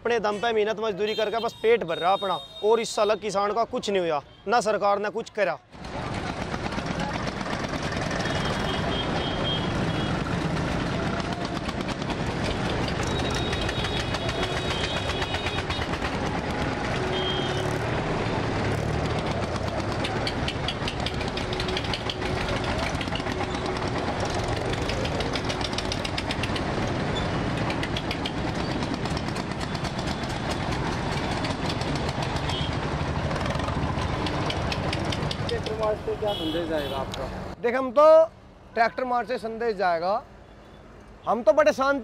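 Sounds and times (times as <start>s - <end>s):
diesel tractor engines running: 5.8s - 37.6s.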